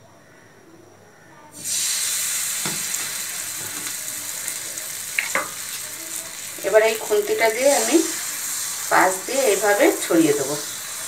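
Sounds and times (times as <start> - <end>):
batter sizzling in hot oil: 1.6 - 11.0.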